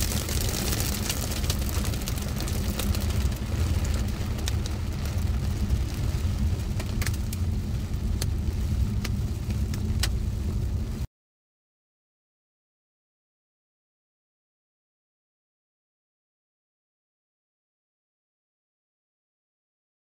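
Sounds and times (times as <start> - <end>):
car engine and road rumble: 0.0 - 11.1.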